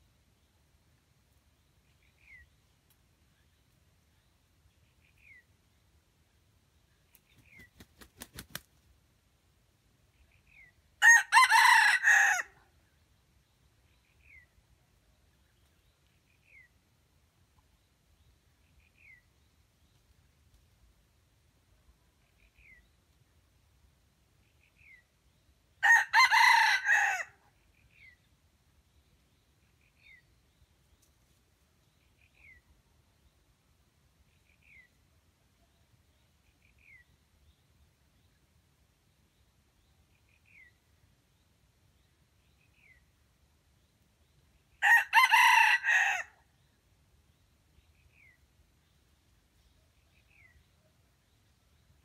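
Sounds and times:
rooster crowing: 0:11.0 - 0:12.6, 0:25.8 - 0:27.4, 0:44.8 - 0:46.3.

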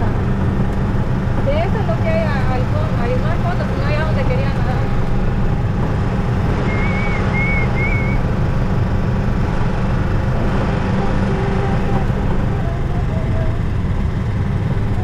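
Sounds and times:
golf cart motor drone: 0:00.0 - 0:15.0
short high chirps: 0:06.6 - 0:08.2.

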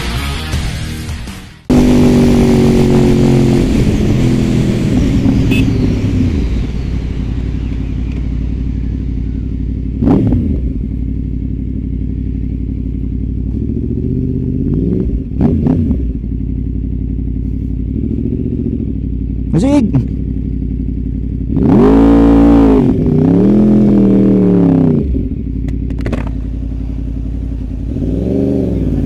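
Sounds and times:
motorcycle engine revving: 0:01.6 - 0:29.0
wind rush: 0:01.9 - 0:08.8.

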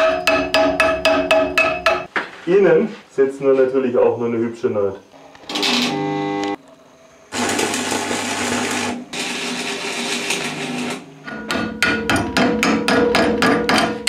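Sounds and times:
hammer striking steel: 0:00.0 - 0:02.1, 0:11.3 - 0:14.0
arc welding hiss and hum: 0:05.2 - 0:06.6, 0:07.3 - 0:11.2.

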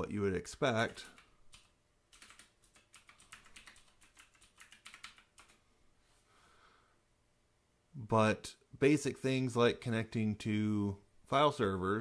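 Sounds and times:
faint keyboard typing: 0:00.6 - 0:05.6.

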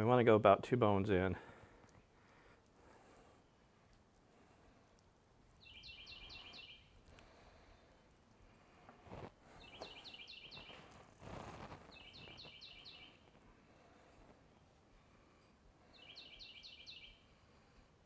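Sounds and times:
songbird singing faintly: 0:04.8 - 0:08.1, 0:09.5 - 0:17.8
soft rustles: 0:08.6 - 0:14.5.

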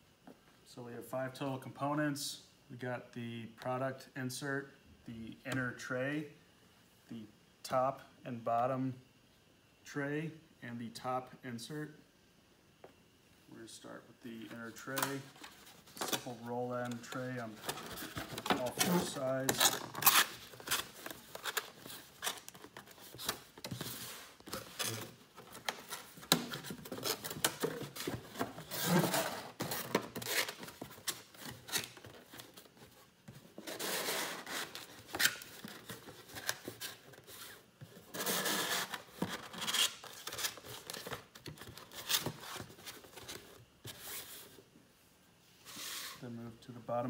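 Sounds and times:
cardboard scraping and rubbing: 0:17.0 - 0:41.0.

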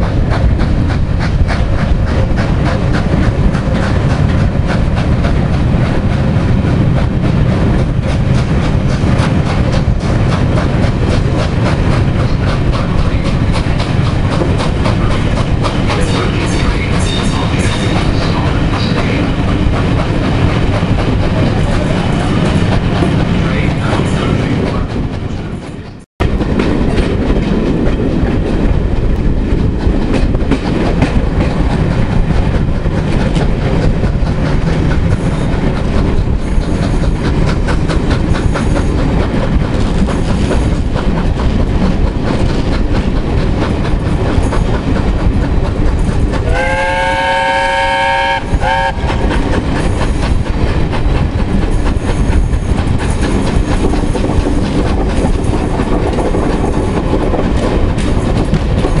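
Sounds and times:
train carriages rumbling: 0:00.0 - 0:59.0
wheels clicking over rail joints: 0:00.0 - 0:59.0
train whistle: 0:46.4 - 0:49.1.

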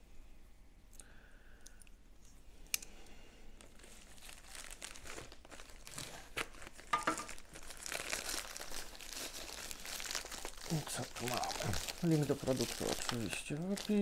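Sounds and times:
envelope crinkling and tearing: 0:03.6 - 0:14.0.

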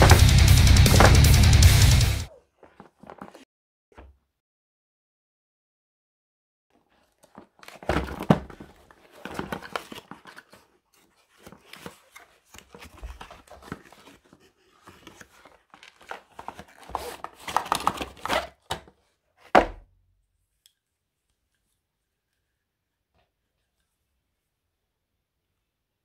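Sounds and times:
cardboard scraping and rustling: 0:00.0 - 0:01.4, 0:02.6 - 0:03.4, 0:07.0 - 0:19.8.

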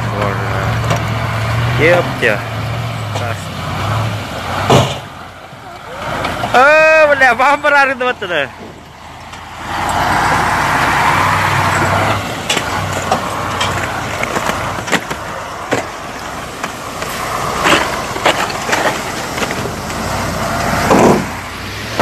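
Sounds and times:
truck engine running: 0:00.0 - 0:22.0
snow crunching and cracking: 0:11.8 - 0:20.6.

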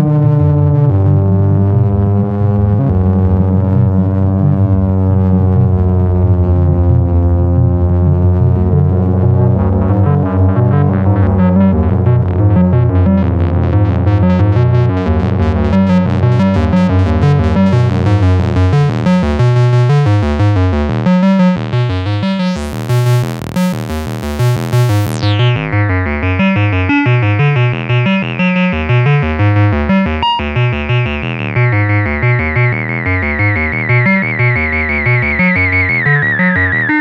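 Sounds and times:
pulsing synthesizer sequence: 0:00.0 - 0:37.0
sustained low synth bass: 0:00.0 - 0:37.0
hissy filter sweep: 0:22.5 - 0:26.2.

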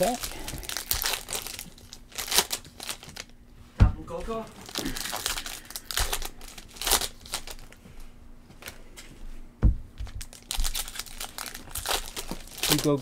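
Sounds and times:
foil packs crinkling: 0:00.0 - 0:03.4, 0:04.5 - 0:07.8, 0:10.0 - 0:13.0
dull knock on table: 0:09.6 - 0:09.8.

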